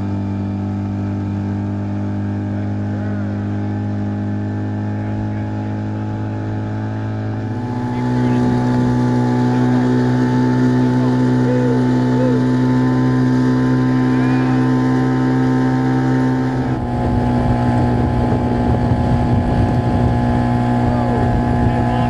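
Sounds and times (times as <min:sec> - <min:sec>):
motorboat engine running: 0:00.0 - 0:22.0
rush of boat wake: 0:00.0 - 0:22.0
wind buffeting microphone: 0:16.6 - 0:22.0.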